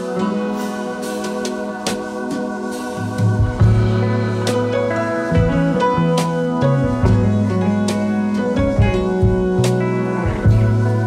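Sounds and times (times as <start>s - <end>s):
sustained instrumental chords: 0.0s - 11.0s.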